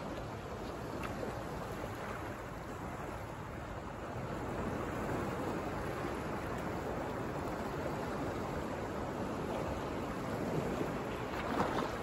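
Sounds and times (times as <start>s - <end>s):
waves breaking on shore: 0.0s - 12.0s.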